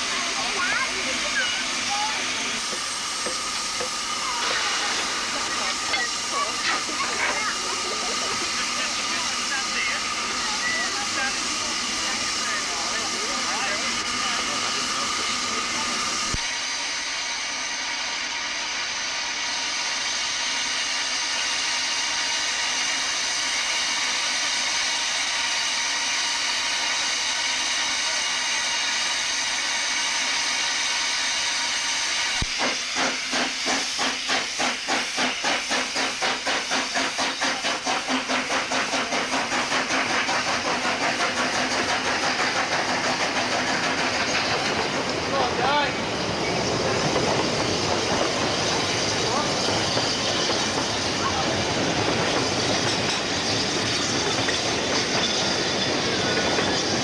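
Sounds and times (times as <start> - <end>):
steam hissing: 0.0 - 57.0
steam locomotive exhaust beats: 0.0 - 57.0.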